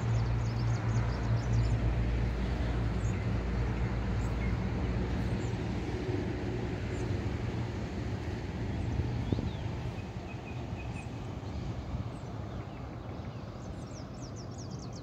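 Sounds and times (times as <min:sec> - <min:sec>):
small birds chirping: 0:08.7 - 0:15.0.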